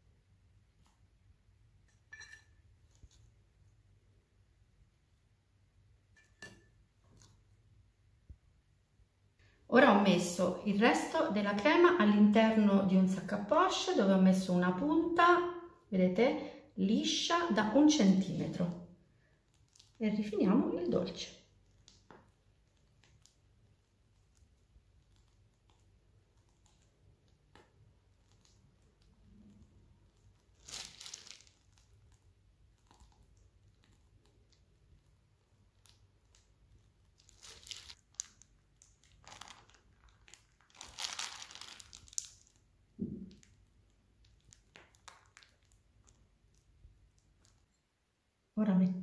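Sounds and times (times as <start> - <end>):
piping bag crinkling: 2.8 - 3.6, 17.6 - 47.8.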